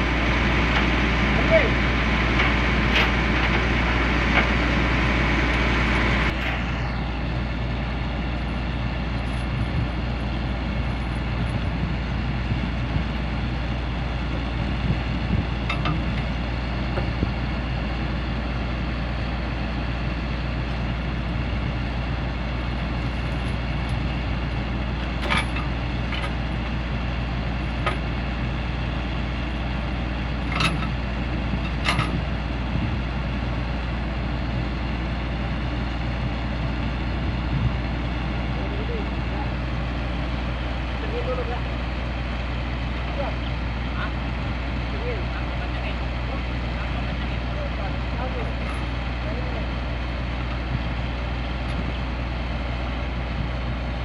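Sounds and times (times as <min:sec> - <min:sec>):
diesel engine idling: 0:00.0 - 0:54.0.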